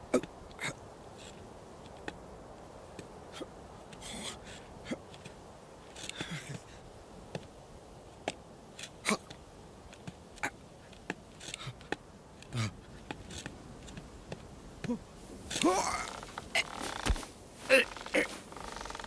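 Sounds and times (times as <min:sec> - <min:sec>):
hooves clicking on rock: 0:07.3 - 0:19.0.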